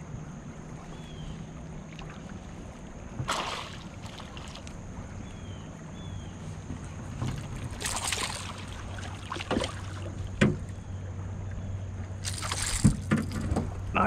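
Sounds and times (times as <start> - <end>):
steady low hum: 0.0 - 14.0
fish splashing and thrashing: 1.8 - 4.9, 7.1 - 10.8, 12.2 - 13.9.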